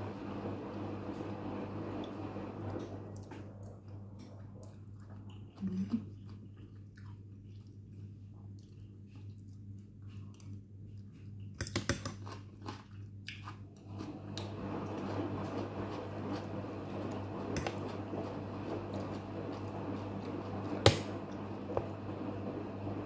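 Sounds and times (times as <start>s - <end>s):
person chewing: 3.6s - 14.4s.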